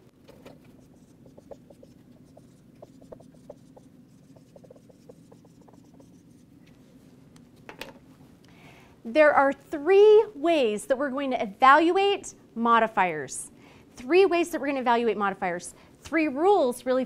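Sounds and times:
low room hum: 0:00.0 - 0:17.0
marker squeaking on whiteboard: 0:00.3 - 0:06.5.

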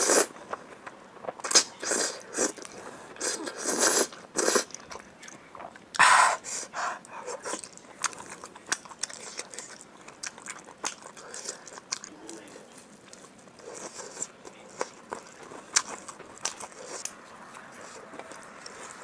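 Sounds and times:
wet chewing with smacking: 0:07.0 - 0:19.0.

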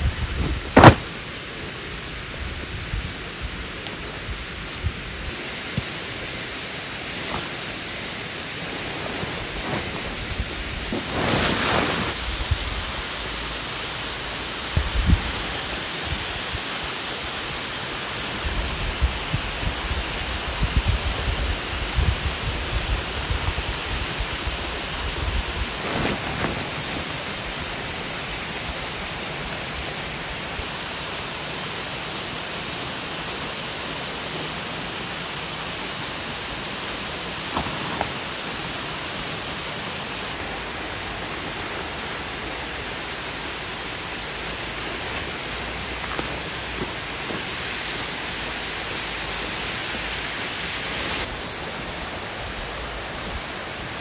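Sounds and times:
running water rushing: 0:00.0 - 0:20.6, 0:21.4 - 0:54.0
fabric swish: 0:00.4 - 0:01.2, 0:08.4 - 0:12.2, 0:25.8 - 0:27.4.

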